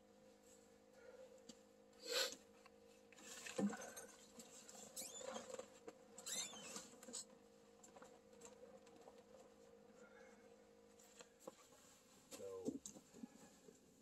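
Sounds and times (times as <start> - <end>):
short high squeaks: 6.2 - 6.9.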